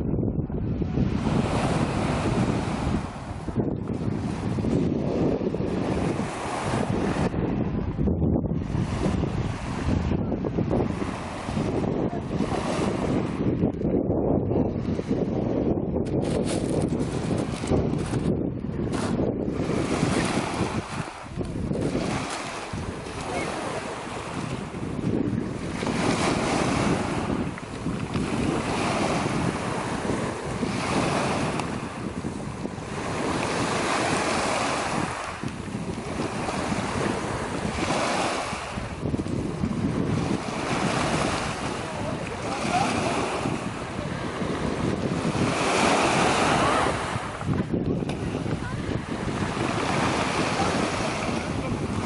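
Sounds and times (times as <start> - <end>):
wind buffeting microphone: 0.0 - 52.0
waves washing over pebbles: 16.1 - 18.3, 18.9 - 52.0.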